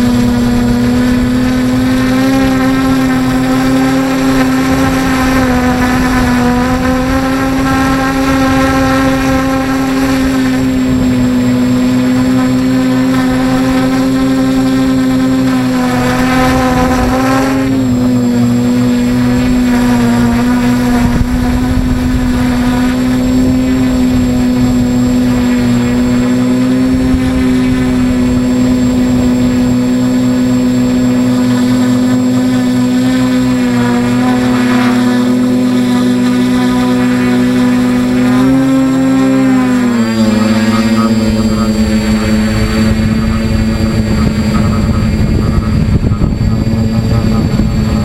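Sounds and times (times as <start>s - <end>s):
drone propellers whining: 0.0s - 48.0s.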